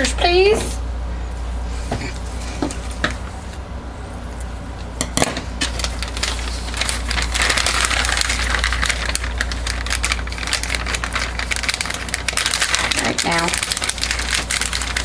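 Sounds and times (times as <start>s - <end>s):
steady low hum: 0.0s - 15.0s
plastic bag crinkling: 5.6s - 15.0s.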